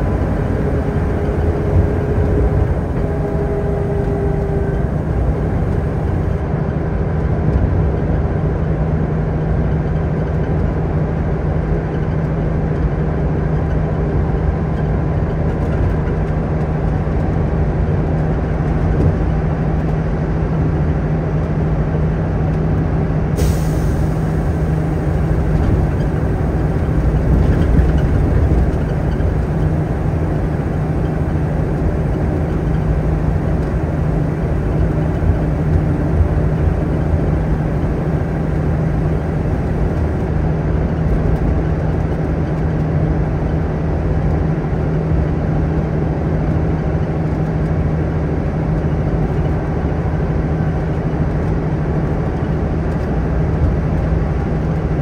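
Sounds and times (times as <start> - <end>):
bus engine drone: 0.0 - 55.0
road noise: 0.0 - 55.0
sudden air hiss: 23.4 - 27.0.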